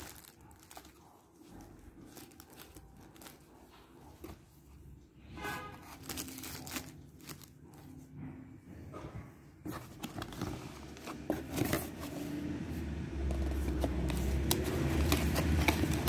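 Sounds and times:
plastic wrapping crinkling: 0:00.0 - 0:03.9, 0:05.8 - 0:07.8, 0:13.2 - 0:16.0.

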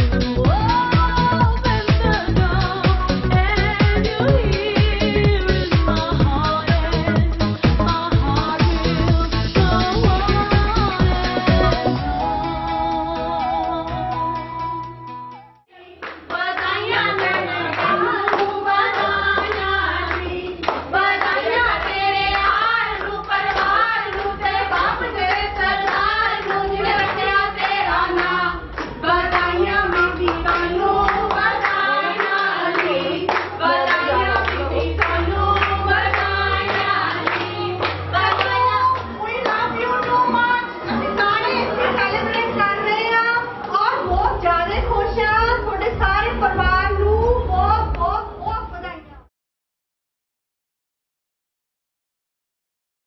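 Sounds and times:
voices singing over music: 0:00.0 - 0:48.4
hand clapping: 0:16.0 - 0:40.2.

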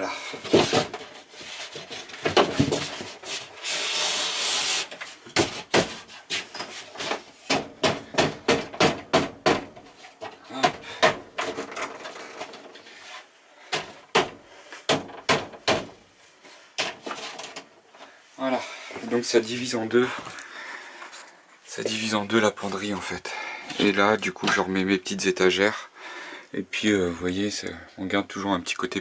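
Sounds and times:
wooden board scraping: 0:00.4 - 0:07.8
sharp knocks on wood: 0:07.5 - 0:09.8, 0:13.7 - 0:16.0.

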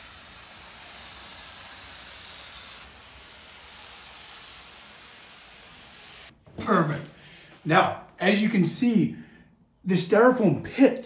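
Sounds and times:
spray paint can hissing: 0:00.0 - 0:06.3.

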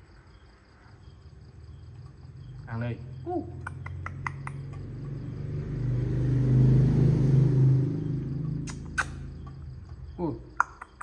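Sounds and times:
vehicle engine passing by: 0:01.4 - 0:10.5
sharp clicks: 0:03.6 - 0:04.8, 0:08.6 - 0:09.6.

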